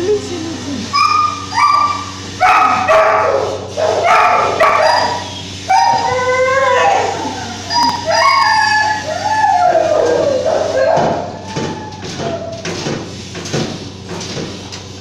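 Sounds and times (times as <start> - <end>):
dog yipping and whining: 0.9 - 12.5.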